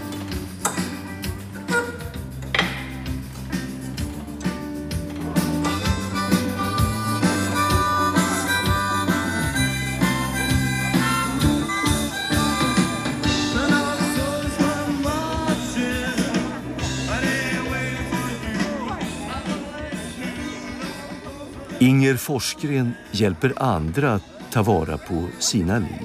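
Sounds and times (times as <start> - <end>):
blues-rock band playing: 0.0 - 21.8
harmonica lead: 1.3 - 2.4, 5.4 - 15.5.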